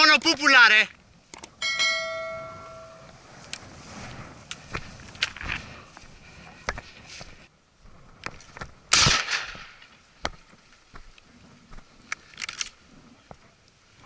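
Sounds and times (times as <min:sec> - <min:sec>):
shotgun shot: 0:08.9 - 0:09.6.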